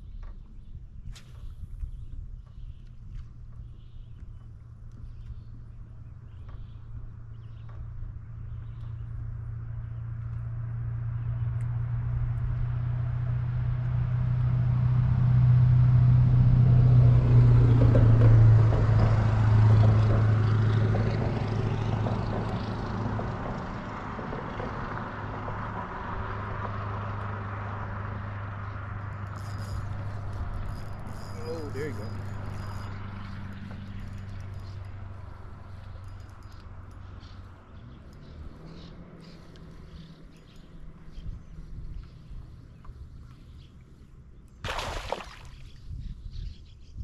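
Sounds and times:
engine passing by: 0:08.2 - 0:46.5.

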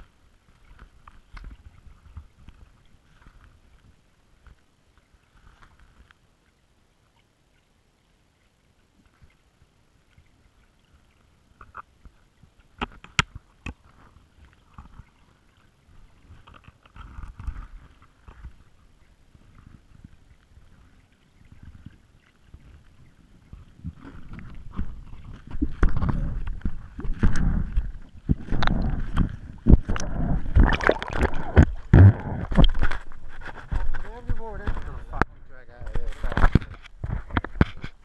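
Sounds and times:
underwater clicks and knocks: 0:00.5 - 0:04.6, 0:11.6 - 0:15.2, 0:16.3 - 0:18.6, 0:23.5 - 0:38.0
underwater low rumbling: 0:13.9 - 0:38.0.

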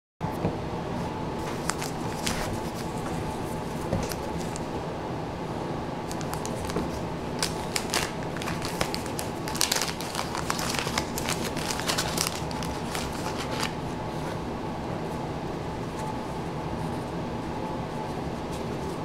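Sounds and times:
wax paper wrapper crinkling and tearing: 0:01.5 - 0:03.0, 0:06.1 - 0:13.8.

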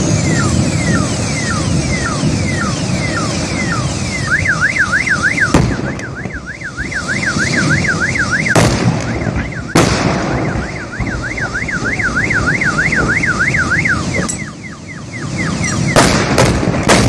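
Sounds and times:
car alarm warbling: 0:00.0 - 0:16.3
burning vehicle exploding: 0:05.1 - 0:14.2, 0:15.5 - 0:17.0.

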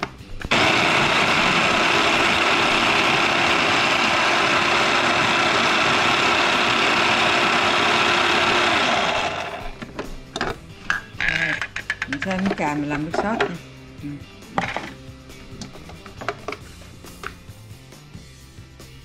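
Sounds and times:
electric food chopper whirring: 0:00.5 - 0:09.8.

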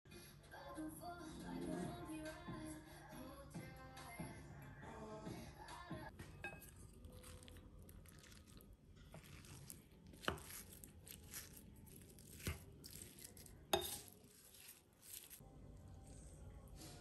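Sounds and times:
spoon scraping and squishing food: 0:06.2 - 0:15.4
spoon tapping ceramic bowl: 0:06.4 - 0:06.8.

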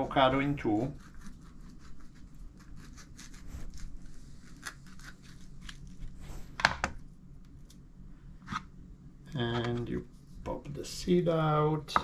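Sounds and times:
knife cutting avocado: 0:00.8 - 0:06.0.

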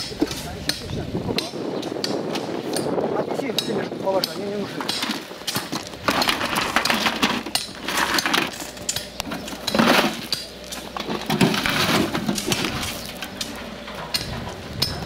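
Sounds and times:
gravel crunching: 0:02.2 - 0:15.0
stones clattering against metal tub: 0:04.1 - 0:15.0.

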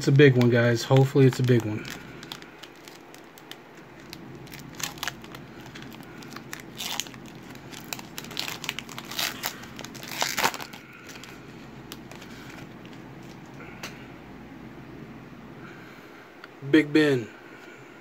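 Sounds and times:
foil ripping: 0:00.0 - 0:12.7
foil wrapper crinkling: 0:00.0 - 0:13.5.

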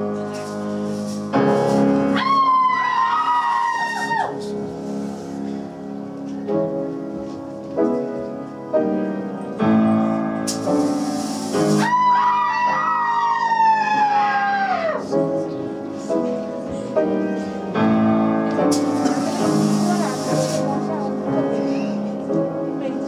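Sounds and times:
piano chords: 0:00.0 - 0:23.0
short hiss: 0:10.5 - 0:12.0, 0:18.7 - 0:20.9.

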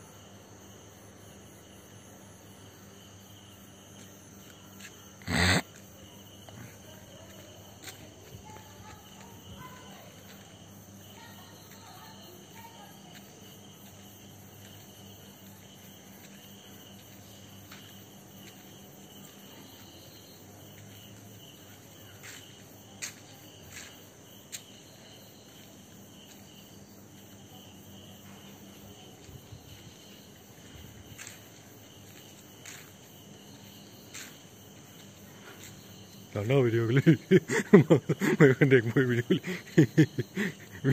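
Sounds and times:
crickets chirping: 0:00.0 - 0:40.9.

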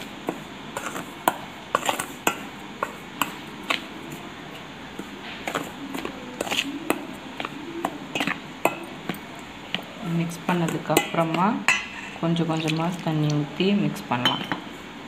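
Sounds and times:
spoon scraping flour in bowl: 0:00.0 - 0:04.2, 0:05.0 - 0:12.2
spoon clinking against metal bowl: 0:06.4 - 0:09.4, 0:10.6 - 0:12.2, 0:14.2 - 0:14.6.

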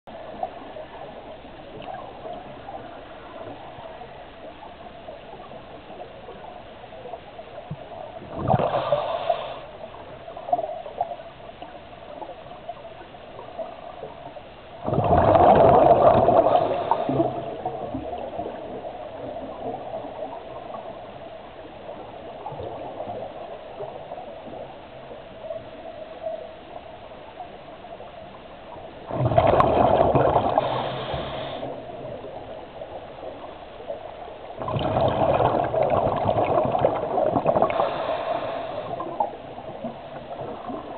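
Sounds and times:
underwater hiss and hum: 0:00.1 - 0:40.9
exhaled bubbles from regulator: 0:08.2 - 0:09.7, 0:14.8 - 0:18.8, 0:29.1 - 0:32.4, 0:34.6 - 0:40.9.

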